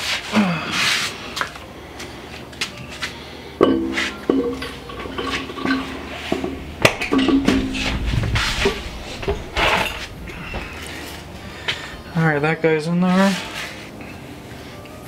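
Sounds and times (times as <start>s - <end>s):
metal clanks and knocks: 3.6s - 12.3s
short rustling: 5.0s - 12.3s.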